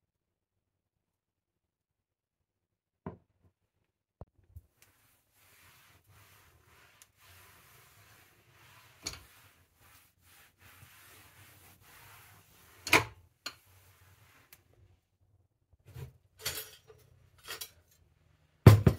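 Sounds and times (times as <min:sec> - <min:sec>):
cloth rubbing countertop: 0:04.6 - 0:14.9.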